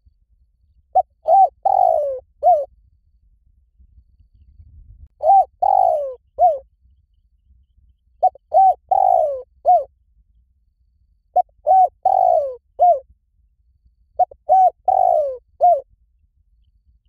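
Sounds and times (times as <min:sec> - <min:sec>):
dove cooing: 0:00.9 - 0:02.7, 0:05.2 - 0:06.6, 0:08.2 - 0:09.9, 0:11.4 - 0:13.0, 0:14.2 - 0:15.8.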